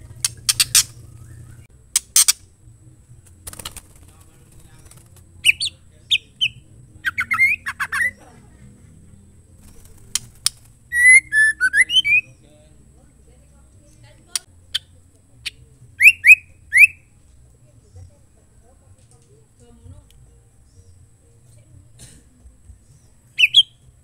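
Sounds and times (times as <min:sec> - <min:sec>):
bird calling with rasping notes: 0:00.0 - 0:02.5, 0:03.2 - 0:12.5, 0:13.8 - 0:17.1, 0:22.8 - 0:24.0
bird whistling: 0:00.2 - 0:02.3, 0:05.4 - 0:08.2, 0:10.9 - 0:12.4, 0:16.0 - 0:17.1, 0:23.0 - 0:23.9.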